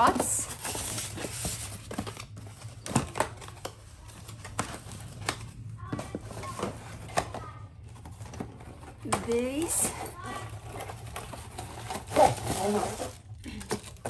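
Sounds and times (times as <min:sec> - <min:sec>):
cardboard boxes sliding: 0:00.0 - 0:02.4, 0:09.5 - 0:13.2.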